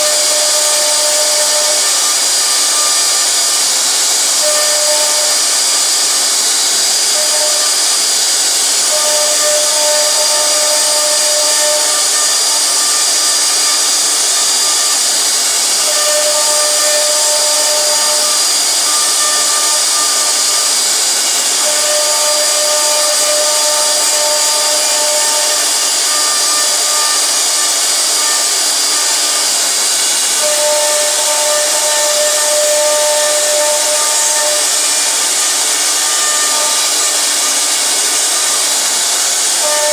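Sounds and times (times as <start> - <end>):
router bit cutting wood: 0.0 - 39.9
router spindle whining: 0.0 - 39.9.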